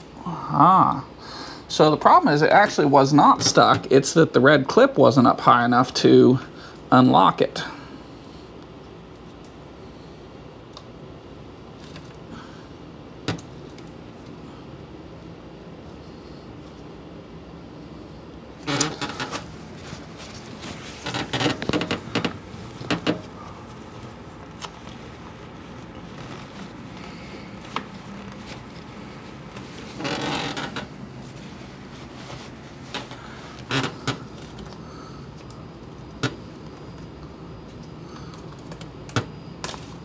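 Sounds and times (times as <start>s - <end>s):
steady low hum: 0.0s - 40.0s
towel rustling: 18.6s - 34.6s.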